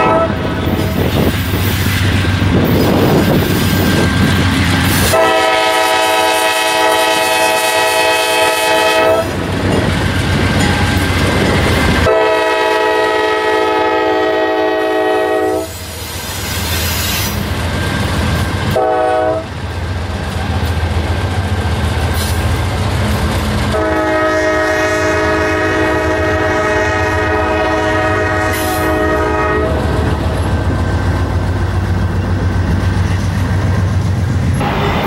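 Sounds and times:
locomotive air horn blasts: 0.0s - 0.6s, 4.9s - 9.4s, 12.0s - 15.8s, 18.7s - 19.5s, 23.7s - 30.0s
diesel engines rumbling: 0.0s - 12.6s, 15.7s - 35.0s
train wheels clicking over rail joints: 0.4s - 5.5s, 9.3s - 12.1s, 15.7s - 24.2s, 28.4s - 35.0s.

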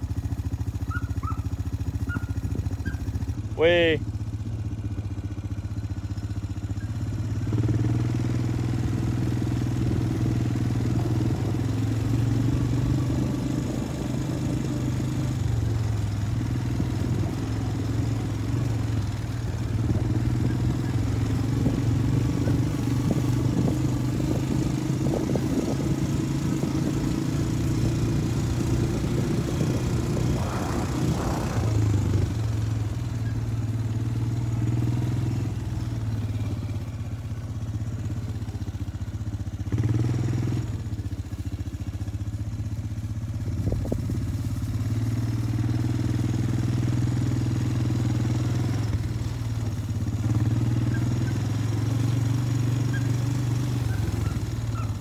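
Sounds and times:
small engine humming: 0.0s - 55.0s.

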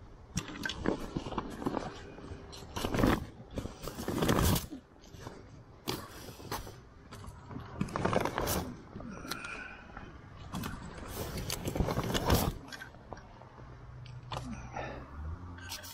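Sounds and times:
plastic jug knocking and crinkling: 0.3s - 6.0s, 7.1s - 8.8s
fabric and straps rustling: 0.4s - 14.8s.

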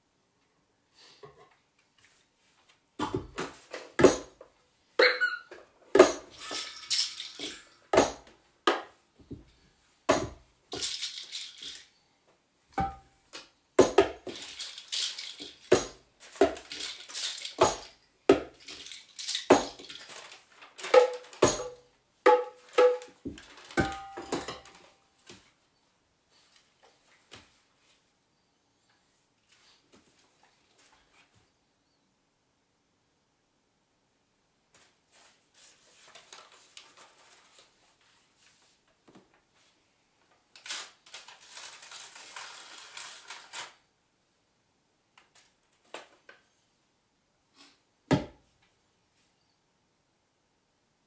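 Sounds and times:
tambourines struck and shaken: 21.0s - 21.8s.

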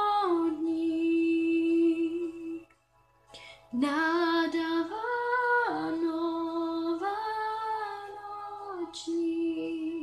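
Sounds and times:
girl singing unaccompanied: 3.8s - 10.0s.

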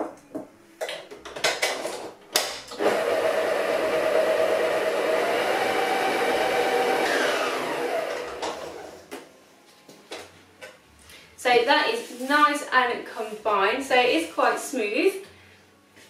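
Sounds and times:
electric mixer motor whining: 2.8s - 9.1s.

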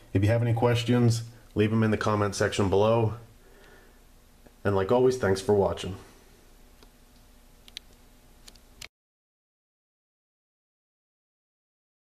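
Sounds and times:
faint low hum: 0.0s - 8.9s.

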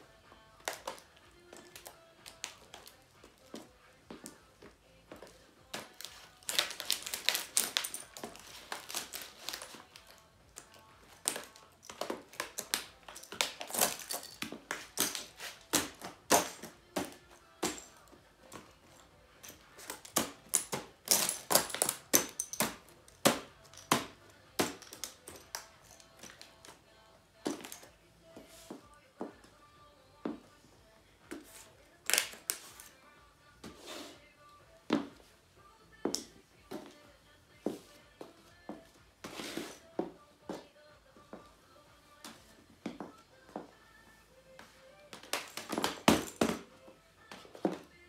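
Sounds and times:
plastic keys cracking and creaking: 6.0s - 18.1s, 19.4s - 24.0s, 24.6s - 26.7s.

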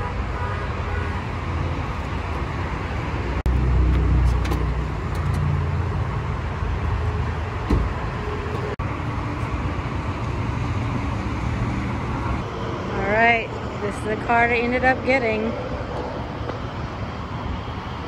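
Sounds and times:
road traffic rumble: 0.0s - 18.0s
brief thump: 7.7s - 8.0s.

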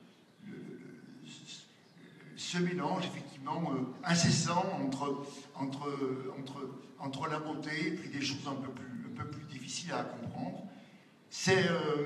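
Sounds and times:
faint voice murmuring: 0.4s - 2.5s.

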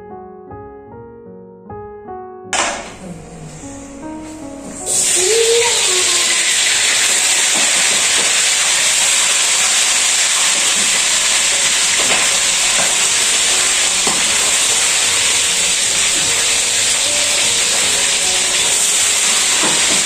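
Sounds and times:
deep-frying oil sizzle: 4.8s - 20.0s.

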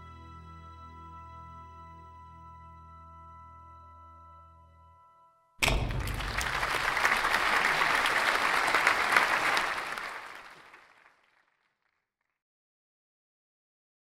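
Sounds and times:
audience applauding: 5.6s - 11.5s.

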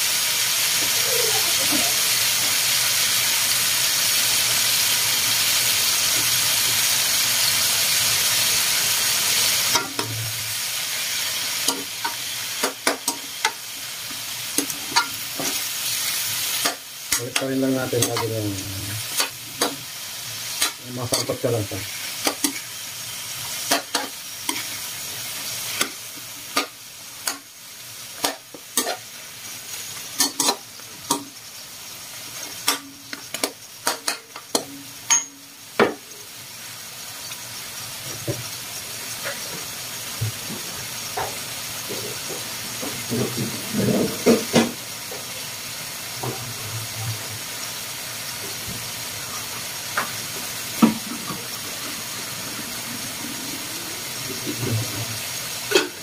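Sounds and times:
meat sizzling in hot oil: 0.0s - 56.0s
metal utensil scraping a wok: 20.4s - 24.9s, 28.2s - 29.1s, 30.2s - 30.6s.

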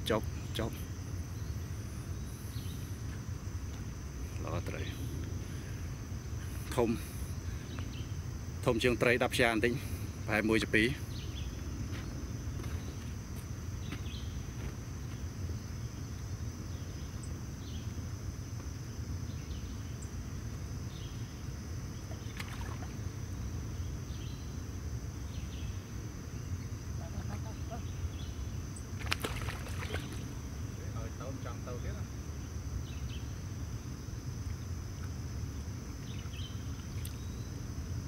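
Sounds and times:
thin high hum: 0.0s - 38.0s
small splash of fish in water: 22.1s - 23.0s, 29.0s - 30.4s.

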